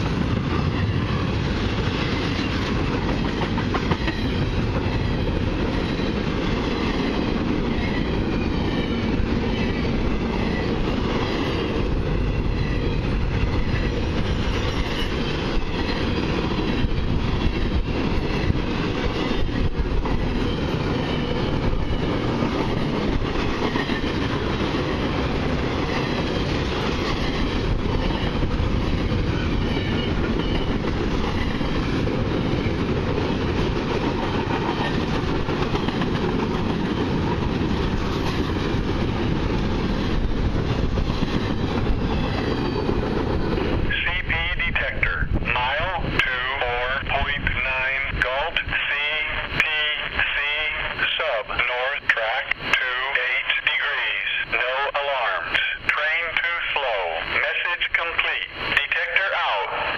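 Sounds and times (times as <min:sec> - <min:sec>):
train wheels clacking: 0:00.0 - 0:43.8
freight train wheels rumbling on rails: 0:00.0 - 0:59.9.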